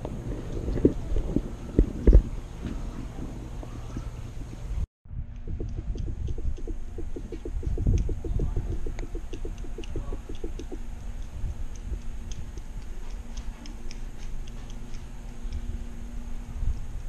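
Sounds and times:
birds calling: 0.0 - 4.8
low rumble: 0.0 - 13.9.

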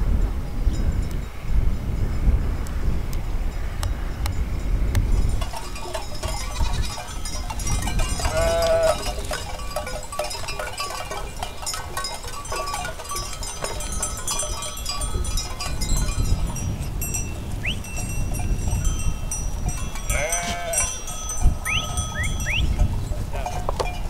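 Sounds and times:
livestock bells clinking: 4.5 - 24.0
animal bleating: 8.2 - 9.1, 20.1 - 20.9.

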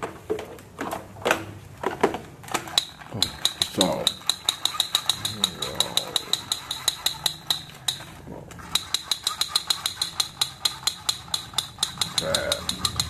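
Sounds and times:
toy pistol rapid-fire clicks: 2.7 - 13.0.

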